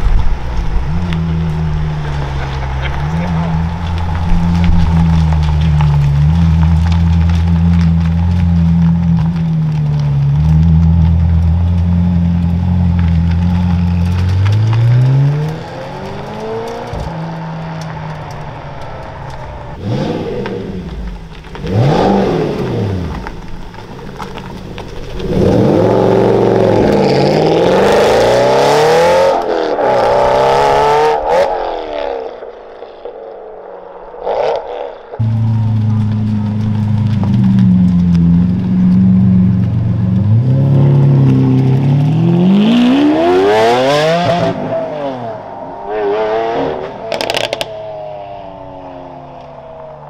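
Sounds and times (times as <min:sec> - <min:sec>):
car engines revving: 0:00.0 - 0:50.0.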